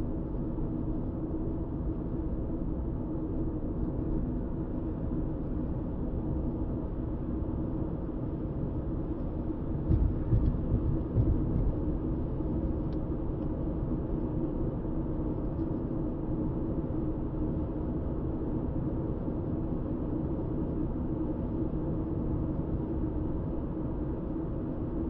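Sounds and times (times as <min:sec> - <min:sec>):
car road and engine noise: 0:08.2 - 0:15.0.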